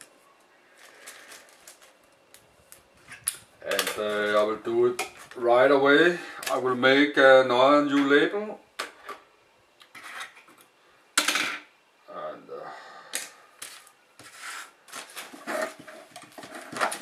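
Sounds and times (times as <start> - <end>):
plastic bag rustling: 0.7 - 3.2, 13.7 - 17.0.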